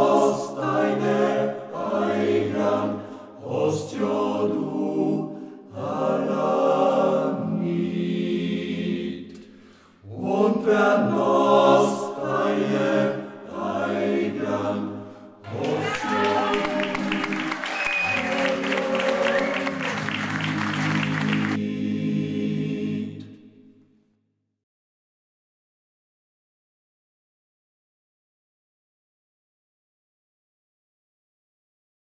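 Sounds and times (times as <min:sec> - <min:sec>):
men's choir singing: 0:00.0 - 0:09.3, 0:10.0 - 0:23.4.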